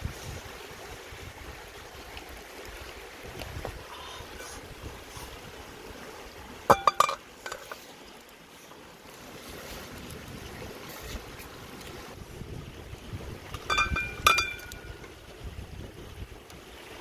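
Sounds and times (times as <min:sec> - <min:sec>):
river rushing: 0:00.3 - 0:17.0
pot lid clanking on pot: 0:06.7 - 0:07.7, 0:13.6 - 0:14.9.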